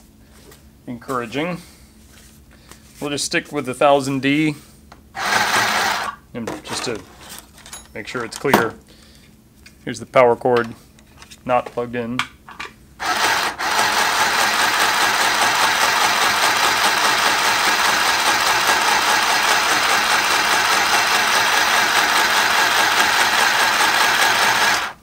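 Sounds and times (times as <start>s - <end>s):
sewing machine running: 5.2s - 6.2s, 13.0s - 25.0s.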